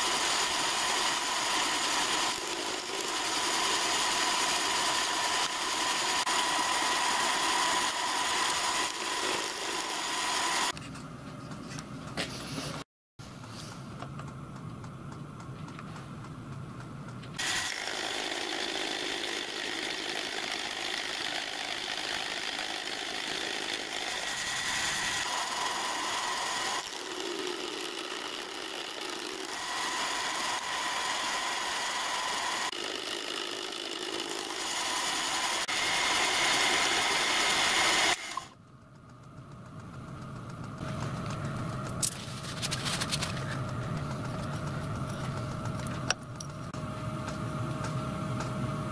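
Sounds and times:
milling machine cutting metal: 0.0 - 10.8, 17.4 - 38.6.

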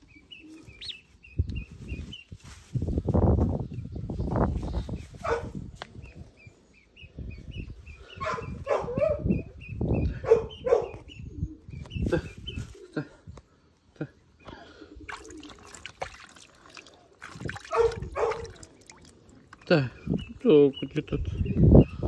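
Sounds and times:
duckling peeping: 0.1 - 2.2.

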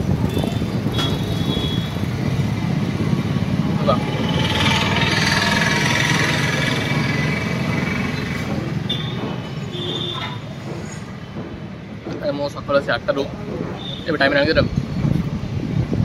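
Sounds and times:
rattling vehicle engine passing: 2.0 - 9.5.

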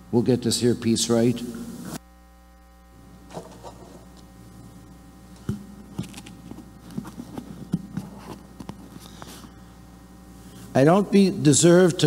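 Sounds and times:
microphone handling rustling: 5.3 - 9.6.

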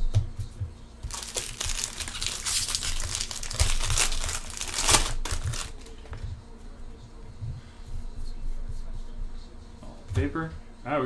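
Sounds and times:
foil wrapper crinkling and tearing: 1.0 - 6.0.

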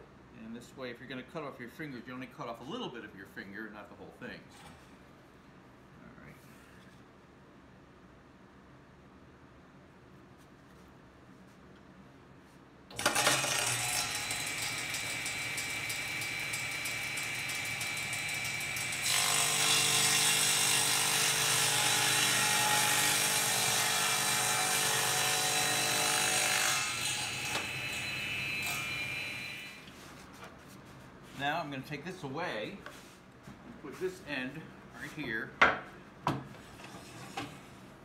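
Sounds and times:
table saw cutting wood: 13.0 - 29.8.

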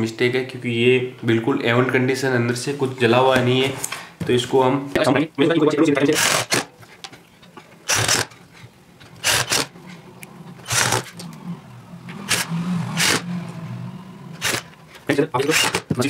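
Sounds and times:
hand tool scraping: 7.9 - 11.4, 14.3 - 16.0.

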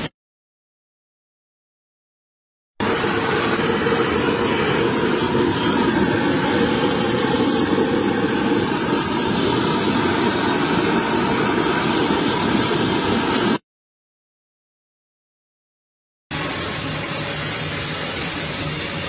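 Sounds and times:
gas torch flame rushing: 2.8 - 13.6, 16.3 - 19.0.

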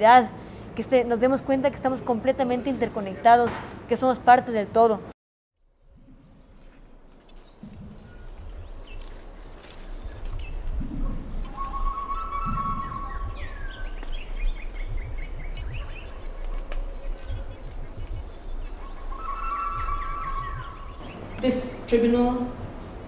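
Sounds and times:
high insect drone: 5.6 - 23.0
birds chirping and calling: 7.4 - 23.0.

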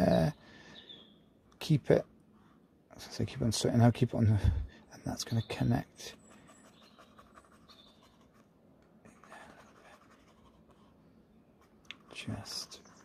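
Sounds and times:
brush scratching on canvas: 6.1 - 8.5, 9.2 - 11.0, 11.6 - 13.0.

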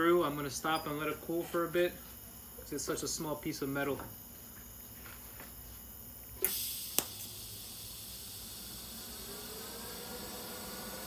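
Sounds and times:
welding arc hissing: 6.4 - 10.6.

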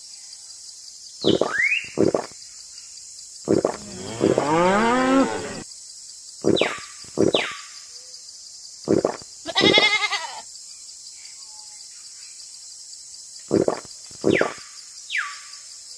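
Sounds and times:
farm animal bleating: 9.4 - 10.4.

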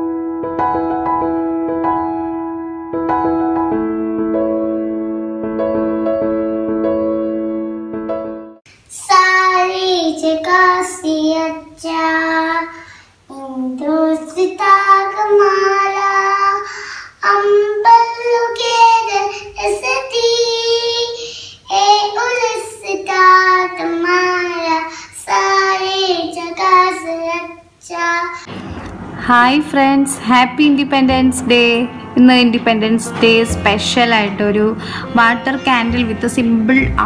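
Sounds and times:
boy singing: 8.9 - 28.4.

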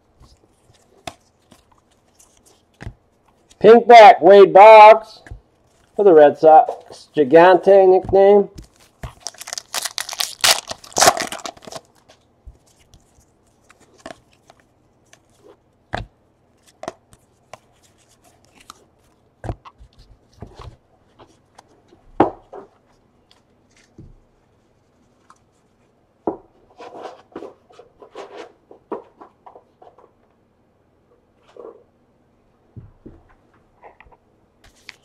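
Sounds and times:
foil pack crinkling: 8.6 - 14.5.

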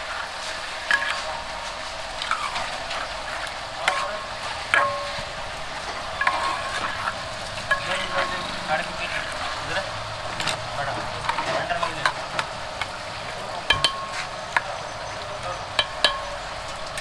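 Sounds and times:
food sizzling in a pan: 0.0 - 17.0
metal utensil scraping a pan: 0.4 - 10.6.

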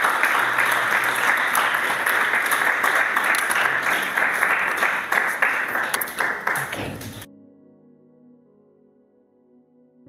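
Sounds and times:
congregation applauding: 0.0 - 7.3.

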